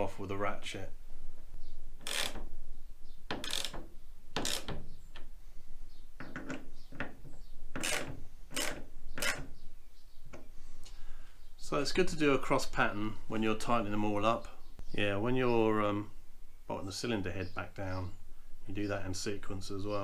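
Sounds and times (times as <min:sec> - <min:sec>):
torque wrench ratcheting: 0:02.0 - 0:02.4, 0:03.3 - 0:03.8, 0:04.4 - 0:04.8, 0:07.8 - 0:09.4.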